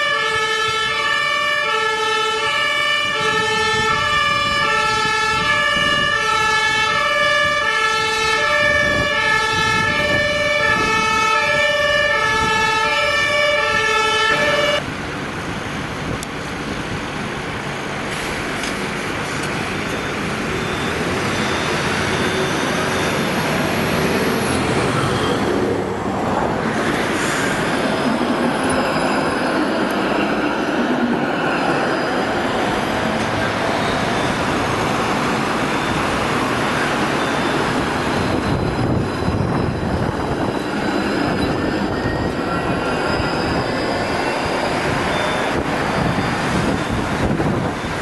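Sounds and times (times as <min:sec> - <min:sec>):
two-tone fire engine siren: 0:00.0 - 0:14.9, 0:33.4 - 0:48.0
diesel lorry engines running: 0:08.2 - 0:48.0.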